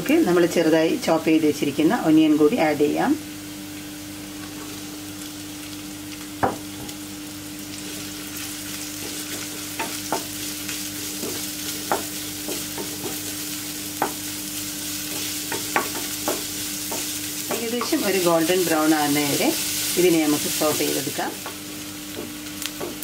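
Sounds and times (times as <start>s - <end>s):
onion sizzling in hot oil: 0.0s - 23.0s
wooden spatula knocking on pan: 9.0s - 10.4s, 11.2s - 13.2s, 14.0s - 14.2s, 15.1s - 18.0s, 21.2s - 23.0s.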